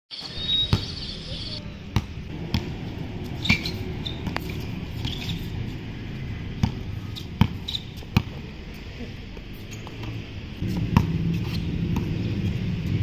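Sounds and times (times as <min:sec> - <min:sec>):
basketball bouncing on hard court: 0:02.0 - 0:05.2, 0:06.6 - 0:08.4, 0:09.8 - 0:12.6.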